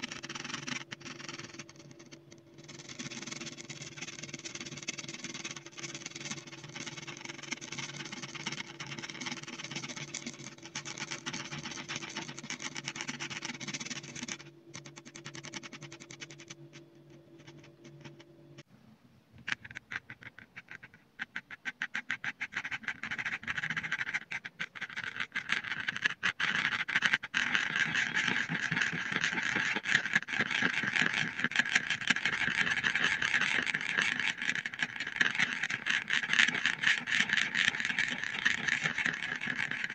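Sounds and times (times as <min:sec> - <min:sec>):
low steady hum: 0:00.0 - 0:19.7.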